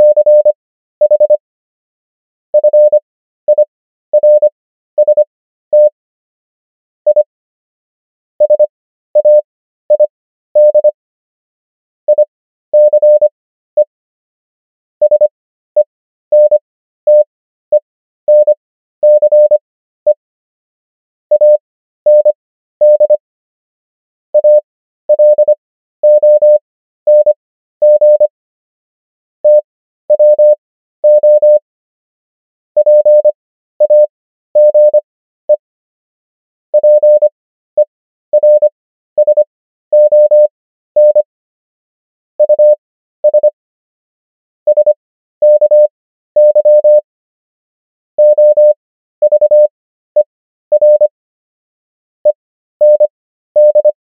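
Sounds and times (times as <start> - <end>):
morse code sine tone: 0.0 - 1.4, 2.6 - 6.0, 7.1 - 7.3, 8.4 - 11.0, 12.1 - 14.0, 15.0 - 20.2, 21.3 - 23.2, 24.4 - 28.3, 29.4 - 31.6, 32.8 - 35.7, 36.8 - 41.3, 42.4 - 43.6, 44.7 - 47.1, 48.2 - 51.2, 52.2 - 54.0.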